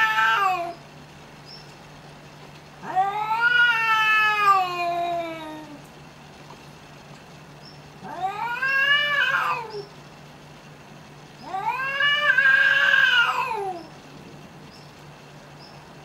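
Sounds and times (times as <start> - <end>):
cats yowling: 0.0 - 0.8, 2.8 - 5.9, 8.0 - 9.9, 11.4 - 14.0.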